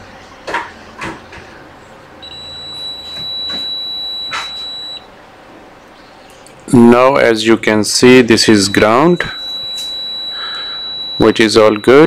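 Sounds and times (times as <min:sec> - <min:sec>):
multimeter continuity beep: 0:02.2 - 0:05.1, 0:08.6 - 0:12.0.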